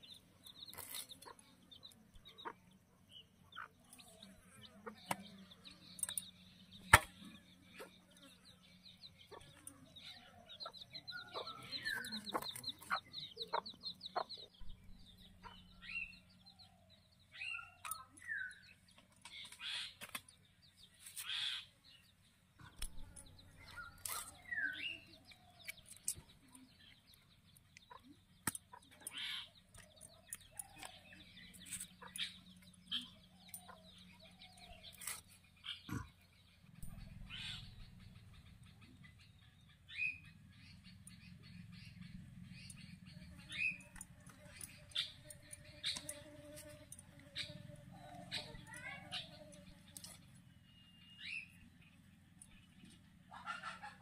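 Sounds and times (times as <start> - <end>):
chickens clucking: 0.0 - 16.3, 27.6 - 50.4, 52.0 - 54.0.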